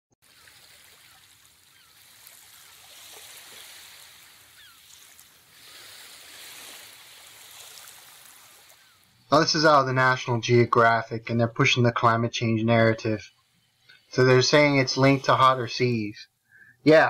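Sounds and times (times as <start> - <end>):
ocean waves washing ashore: 0.2 - 12.1, 13.0 - 17.0
short bird calls: 0.3 - 2.9, 4.2 - 6.1, 8.3 - 9.3, 16.4 - 16.8.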